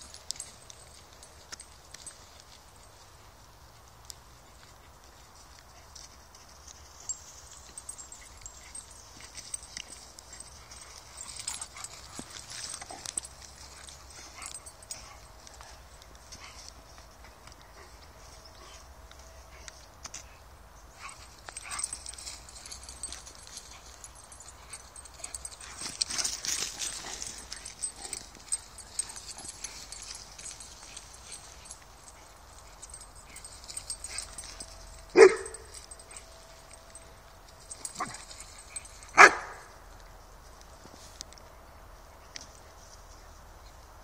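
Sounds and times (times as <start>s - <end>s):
rustling: 0.0s - 41.4s
dog barking: 35.1s - 35.7s, 39.1s - 39.7s.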